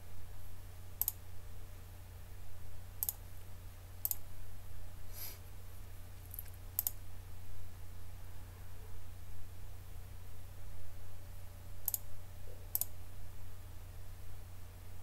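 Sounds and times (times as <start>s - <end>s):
steady low hum: 0.0s - 15.0s
computer mouse clicks: 1.0s - 1.2s, 3.0s - 3.2s, 4.0s - 4.2s, 6.3s - 7.0s, 11.8s - 12.1s, 12.7s - 12.9s.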